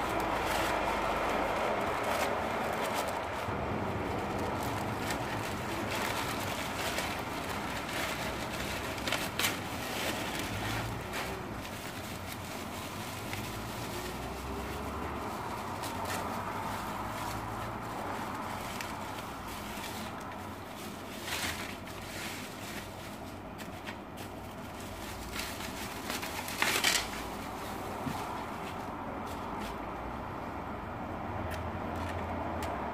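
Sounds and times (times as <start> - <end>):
plastic packaging crinkling: 0.0 - 29.9
steady background noise: 0.0 - 32.9.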